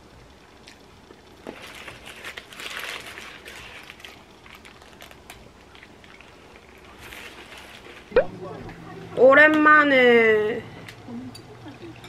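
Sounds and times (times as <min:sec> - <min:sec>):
paper wrapper crinkling: 0:01.5 - 0:08.1.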